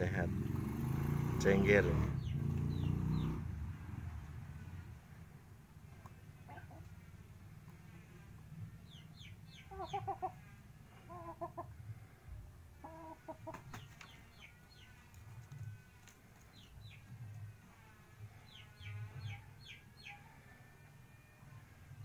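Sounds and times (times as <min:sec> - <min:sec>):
chickens clucking rapidly: 0:09.6 - 0:10.4, 0:11.0 - 0:11.8, 0:12.8 - 0:14.2.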